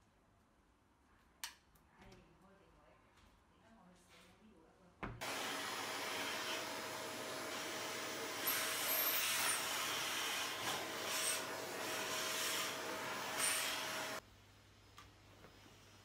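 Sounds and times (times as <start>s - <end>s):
vacuum cleaner running: 5.2s - 14.2s.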